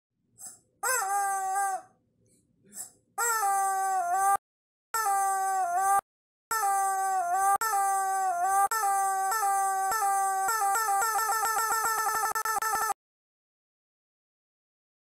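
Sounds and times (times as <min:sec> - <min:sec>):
squeeze toy squawking: 0:00.4 - 0:02.0, 0:03.2 - 0:04.4, 0:05.0 - 0:13.0.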